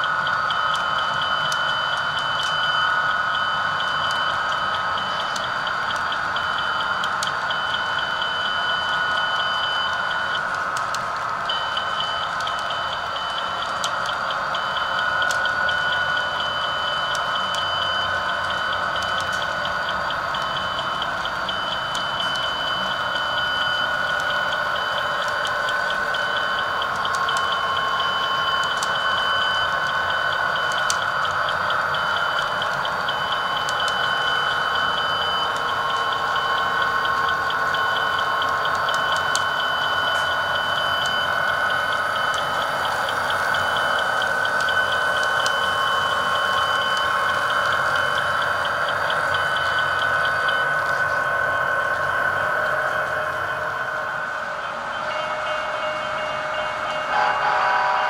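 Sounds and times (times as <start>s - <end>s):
model train cars rolling on track: 0.0s - 58.0s
model crossing bell ringing: 44.9s - 58.0s.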